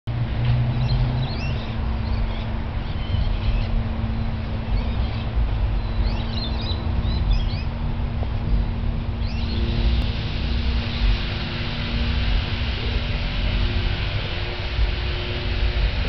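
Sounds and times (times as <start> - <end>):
distant propeller plane engine drone: 0.1 - 16.0
wind rumbling on microphone: 0.1 - 16.0
small birds chirping: 4.6 - 7.7, 8.5 - 9.9.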